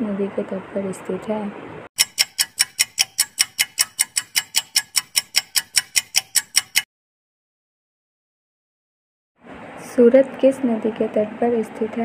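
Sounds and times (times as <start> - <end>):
fast clock ticking: 2.0 - 6.9.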